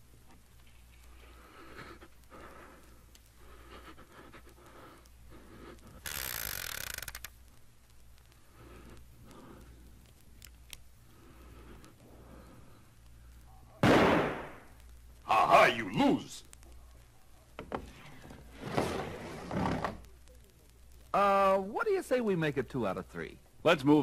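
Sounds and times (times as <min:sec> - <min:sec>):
steady low hum: 0:00.0 - 0:06.5, 0:07.1 - 0:24.0
faint nervous breathing: 0:00.7 - 0:06.8, 0:08.2 - 0:13.7
sharp clicks: 0:06.0 - 0:10.9.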